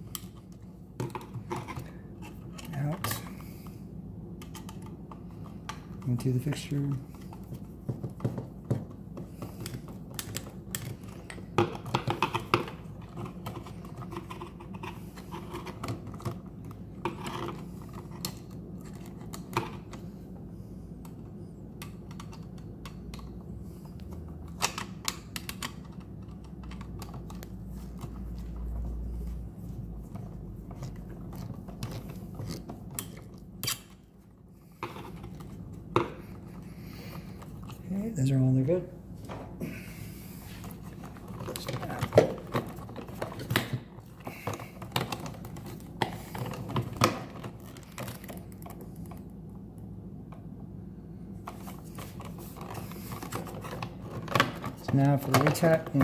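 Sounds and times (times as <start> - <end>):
steady low hum: 0.0 - 56.0
hands handling plastic: 40.3 - 49.4, 51.4 - 56.0.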